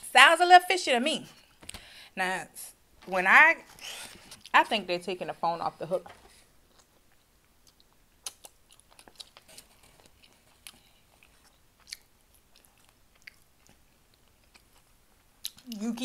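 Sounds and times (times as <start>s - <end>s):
mouth clicks and smacks: 6.7s - 9.5s, 10.1s - 15.8s
chewing: 6.7s - 15.9s.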